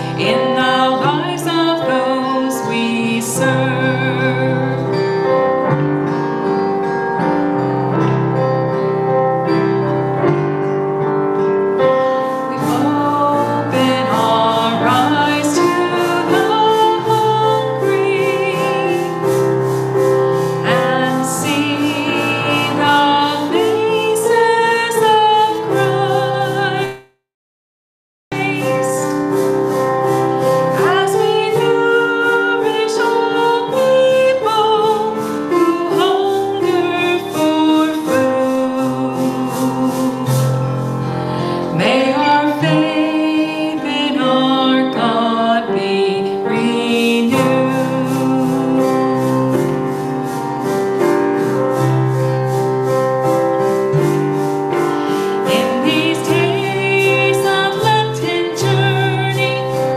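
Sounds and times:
woman singing: 0:00.0 - 0:05.4, 0:12.5 - 0:19.6, 0:20.6 - 0:27.0, 0:28.3 - 0:29.4, 0:30.7 - 0:40.7, 0:41.6 - 0:49.9, 0:55.4 - 0:59.9
instrumental accompaniment: 0:00.0 - 0:27.1, 0:28.3 - 0:59.9.

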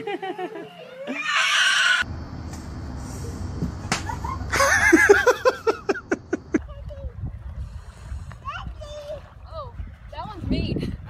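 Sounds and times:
wind on microphone: 0:06.3 - 0:11.0.

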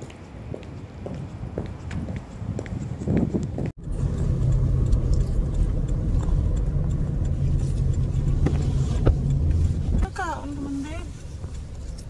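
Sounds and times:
car cabin hum: 0:03.8 - 0:12.0.

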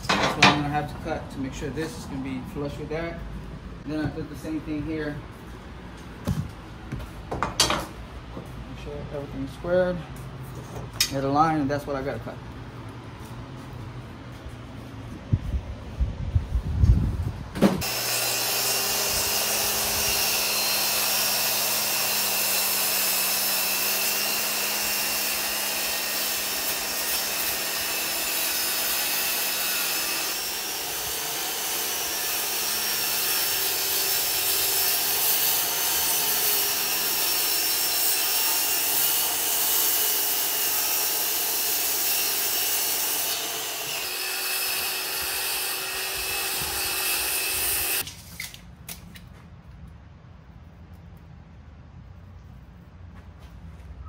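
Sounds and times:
circular saw cutting wood: 0:17.8 - 0:48.1.

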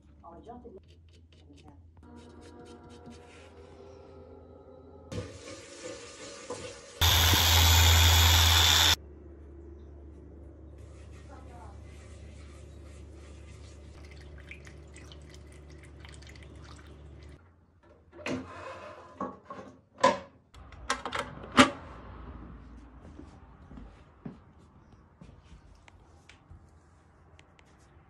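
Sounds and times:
sanding scrubbing strokes: 0:07.0 - 0:09.0.

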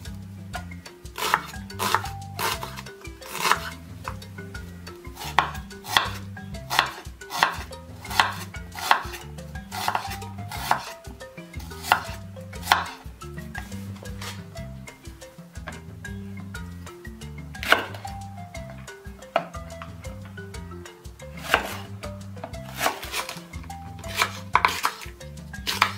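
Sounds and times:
background music: 0:00.0 - 0:25.9
knife chopping on wooden board: 0:01.2 - 0:03.7, 0:05.2 - 0:10.9, 0:11.8 - 0:13.0, 0:17.6 - 0:18.0, 0:21.4 - 0:21.9, 0:22.7 - 0:23.3, 0:24.1 - 0:25.0, 0:25.7 - 0:25.9.

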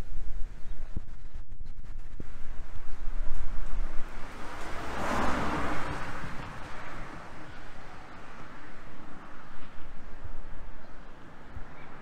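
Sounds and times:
car passing by: 0:02.8 - 0:12.0.

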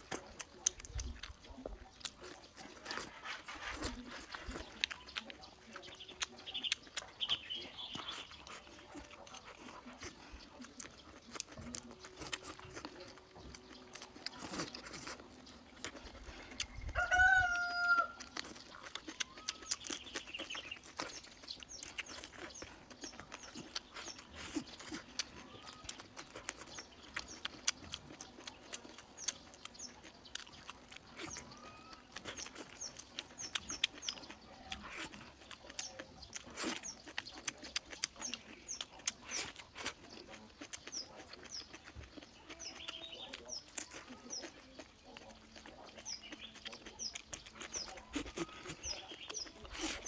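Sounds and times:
chewing food: 0:00.0 - 0:50.0
chicken calling: 0:16.4 - 0:20.0, 0:31.3 - 0:32.5.

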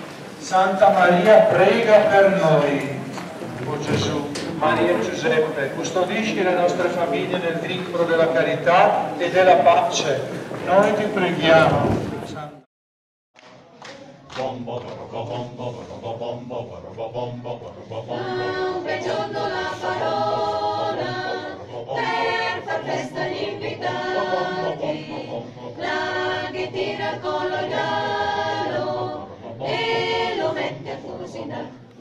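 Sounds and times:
small choir singing: 0:14.3 - 0:32.0.

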